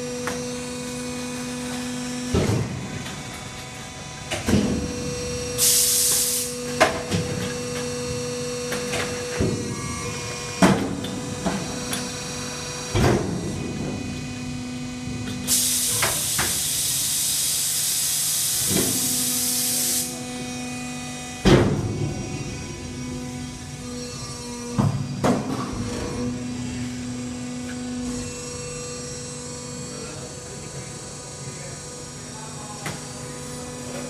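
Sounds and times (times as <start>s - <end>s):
machine hum: 0.0s - 34.0s
air hiss: 5.6s - 6.5s.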